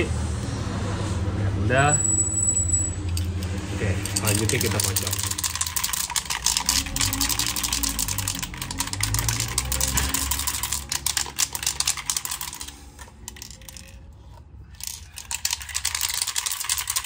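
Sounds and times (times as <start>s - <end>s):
spray can ball rattling: 3.1s - 17.0s.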